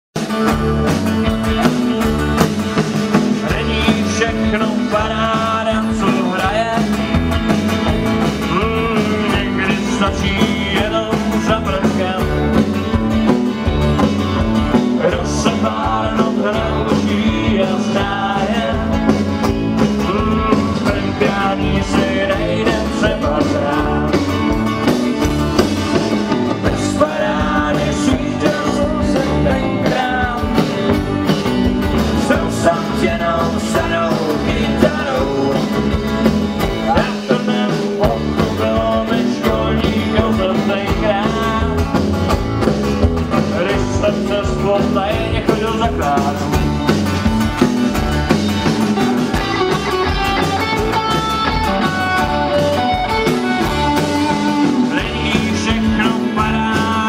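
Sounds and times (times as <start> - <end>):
bass guitar: 0.0 - 57.0
drums keeping a steady beat: 0.1 - 57.0
electric guitars: 0.2 - 57.0
person singing: 3.3 - 7.1, 8.2 - 12.6, 14.8 - 19.2, 19.8 - 24.7, 25.6 - 31.3, 32.0 - 42.1, 43.4 - 46.7, 49.4 - 57.0.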